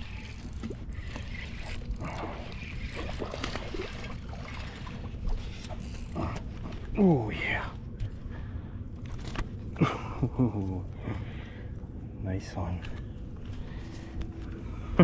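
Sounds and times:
fishing reel winding: 0:00.0 - 0:03.2.

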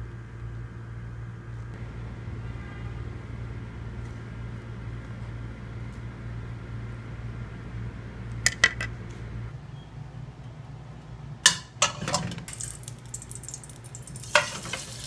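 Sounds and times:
metal utensil clinking on steel tray: 0:11.8 - 0:15.0.

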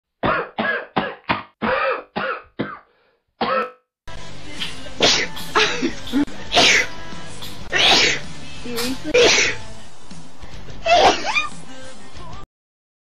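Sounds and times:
person coughing: 0:00.2 - 0:03.8, 0:05.0 - 0:06.9, 0:07.7 - 0:08.2, 0:08.8 - 0:09.6, 0:10.9 - 0:11.4
sharp sneezes: 0:04.6 - 0:05.9, 0:06.5 - 0:09.6, 0:10.8 - 0:11.5.

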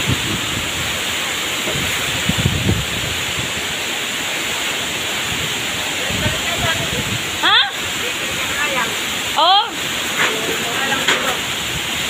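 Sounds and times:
wind buffeting microphone: 0:00.0 - 0:04.0, 0:05.0 - 0:09.0
heavy rain pouring: 0:00.0 - 0:12.0.

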